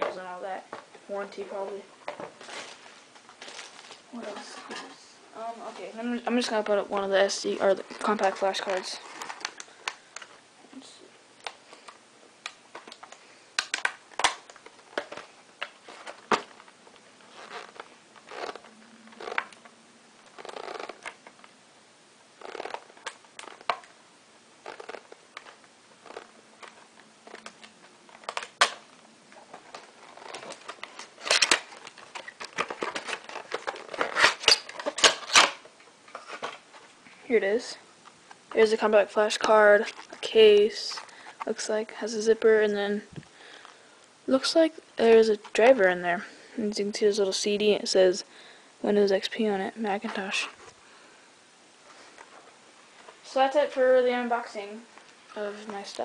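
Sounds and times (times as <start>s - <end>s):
packaging clicks and crinkling: 2.4s - 4.0s, 7.8s - 10.4s, 11.4s - 21.5s, 22.4s - 24.0s, 24.6s - 36.9s.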